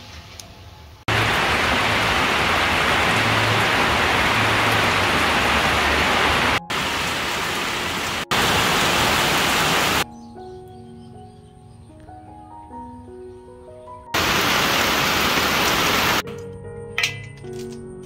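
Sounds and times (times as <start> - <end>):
heavy rain on foliage: 1.1 - 10.0, 14.2 - 16.2.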